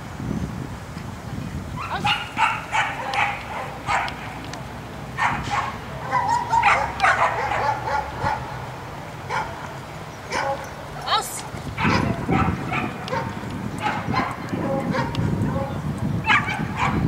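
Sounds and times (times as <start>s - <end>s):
dog barking: 1.8s - 4.3s, 5.2s - 8.5s, 9.3s - 9.7s, 10.3s - 10.7s, 11.8s - 17.0s.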